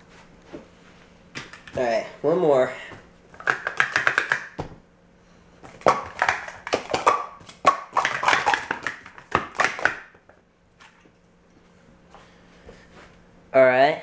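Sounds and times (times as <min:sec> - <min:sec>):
plastic cups clattering: 0:03.4 - 0:04.6, 0:05.7 - 0:10.2.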